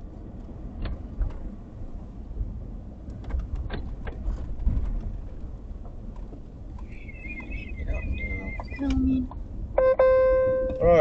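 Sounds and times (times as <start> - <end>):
van road and engine rumble: 0.0 - 11.0
knocks and rattles from bumps: 3.1 - 6.8.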